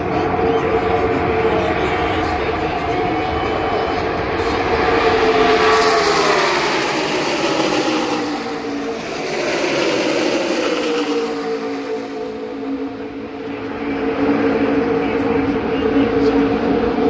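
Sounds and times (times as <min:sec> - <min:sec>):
race cars passing at speed: 0:00.0 - 0:17.0.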